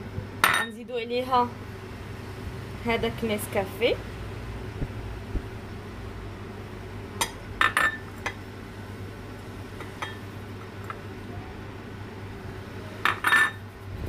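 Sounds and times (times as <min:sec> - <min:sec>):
low steady hum: 0:00.0 - 0:14.0
glass dish clinking on ceramic bowl: 0:00.4 - 0:00.7, 0:07.2 - 0:08.0, 0:13.0 - 0:13.6.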